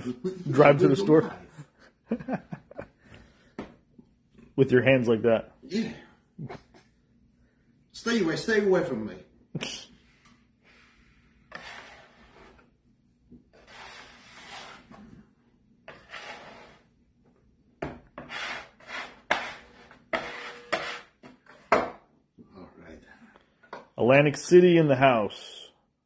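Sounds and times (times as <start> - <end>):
metal scraper scraping wooden board: 11.5 - 12.7, 13.5 - 15.0, 15.9 - 16.9, 18.2 - 21.7.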